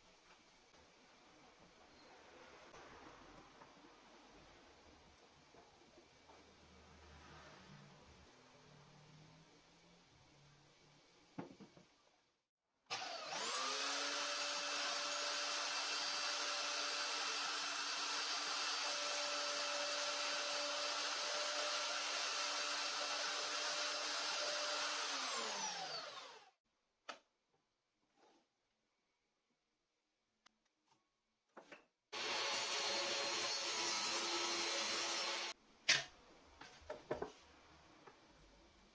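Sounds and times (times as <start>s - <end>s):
belt sander running: 12.9s - 18.5s.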